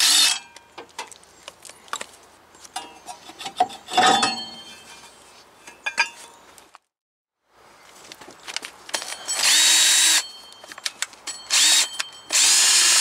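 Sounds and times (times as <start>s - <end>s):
metal clinks and scraping: 2.8s - 6.5s, 8.9s - 12.5s.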